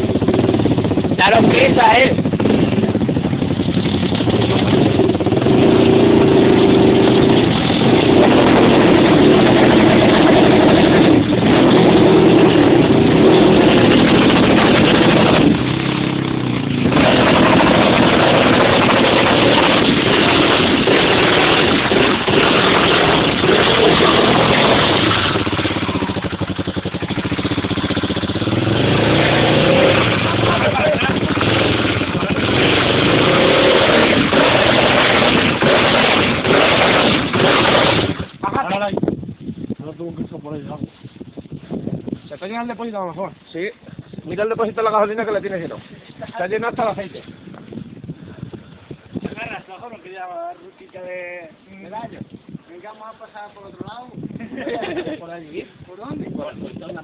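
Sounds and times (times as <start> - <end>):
quad bike engine revving: 0.0 - 38.8
wheels churning through mud: 0.0 - 38.8.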